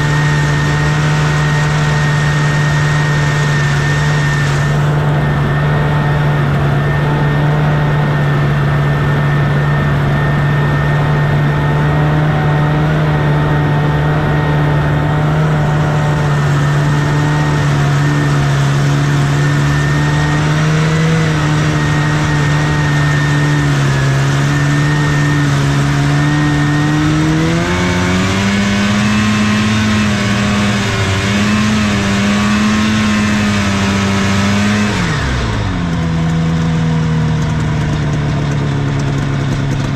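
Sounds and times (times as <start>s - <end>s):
snowmobile engine running: 0.0s - 39.9s.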